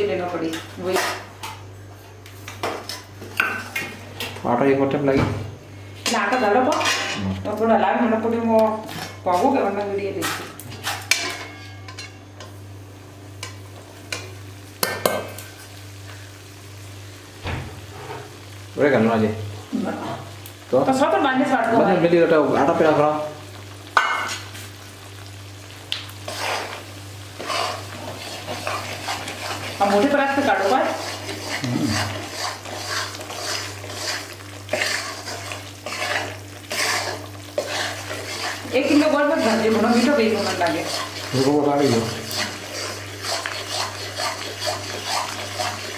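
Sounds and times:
faint sizzle: 0:00.0 - 0:45.9
metal spatula stirring in pan: 0:10.2 - 0:12.2, 0:26.2 - 0:45.9.

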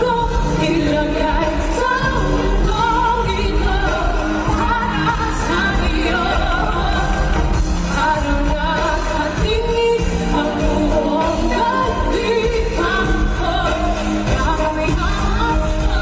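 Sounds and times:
band with pulsing beat: 0:00.0 - 0:16.0
woman singing into microphone: 0:00.0 - 0:16.0.

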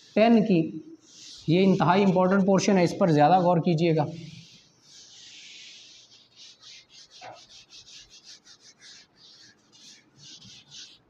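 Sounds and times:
eraser wiping whiteboard: 0:00.0 - 0:11.0.

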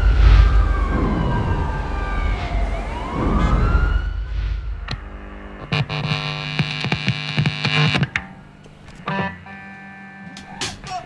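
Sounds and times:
low rumble: 0:00.0 - 0:06.4
emergency siren wailing: 0:00.0 - 0:06.8
sharp clicks: 0:04.9 - 0:08.3.

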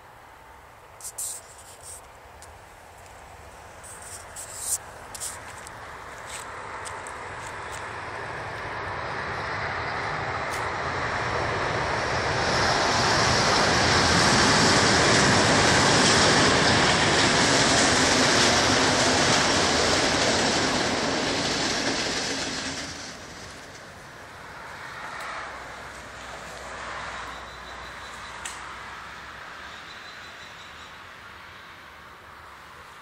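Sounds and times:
vehicle passing: 0:24.0 - 0:29.7.

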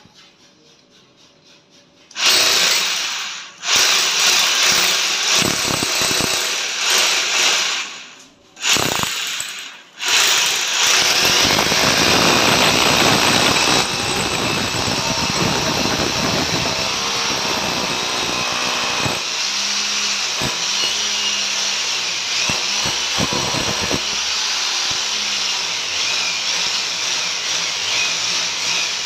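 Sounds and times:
electric drill boring into wall: 0:02.1 - 0:29.0.

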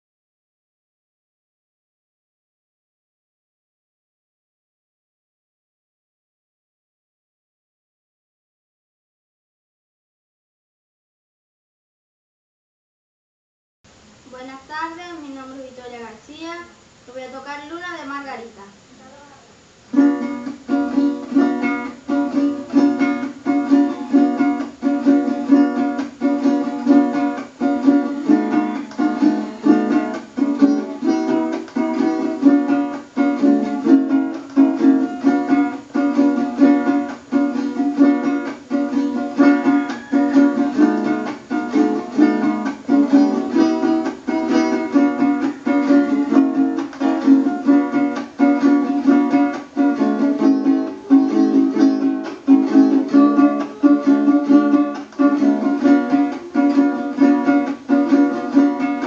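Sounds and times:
small guitar strummed chords: 0:19.9 - 0:59.0.

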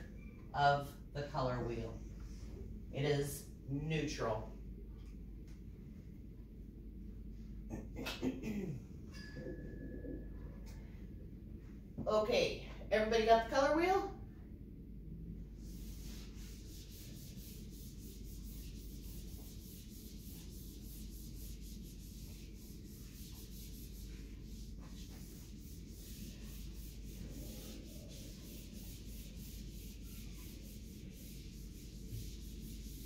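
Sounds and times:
eraser rubbing on whiteboard: 0:15.6 - 0:33.0.

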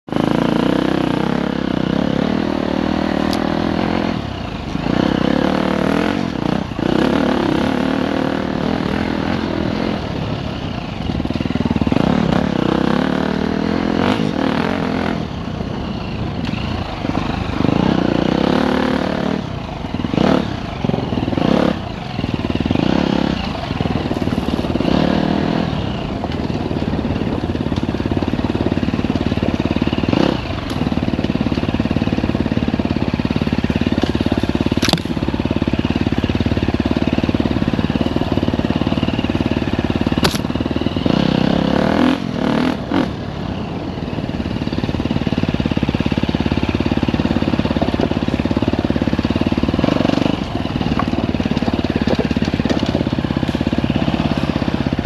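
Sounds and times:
dirt bike engine revving: 0:00.1 - 0:55.0
bike knocking over rough ground: 0:50.8 - 0:53.8.

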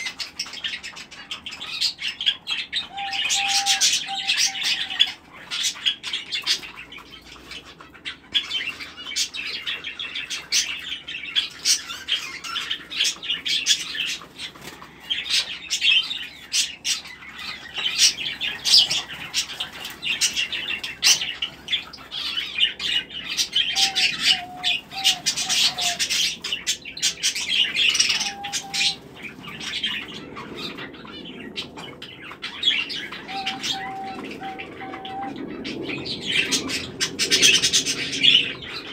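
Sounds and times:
small birds chirping: 0:00.0 - 0:38.9
wings fluttering: 0:13.0 - 0:15.8.

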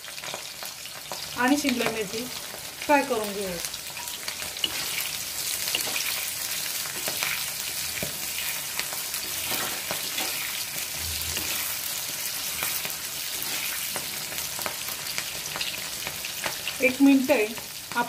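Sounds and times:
vegetables sizzling in oil: 0:00.0 - 0:18.0.

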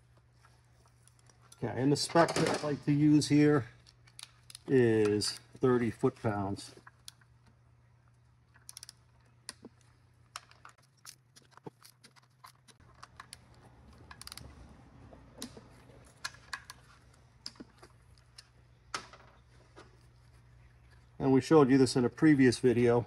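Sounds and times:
torque wrench clicking: 0:14.1 - 0:14.4.

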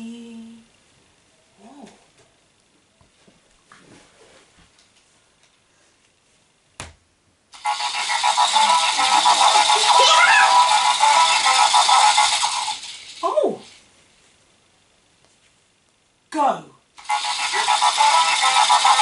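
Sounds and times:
buzzing electronic toy music: 0:07.6 - 0:13.8, 0:17.0 - 0:19.0.

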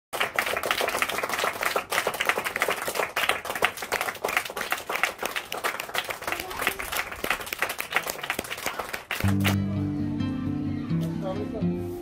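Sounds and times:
children clapping: 0:00.1 - 0:09.6.

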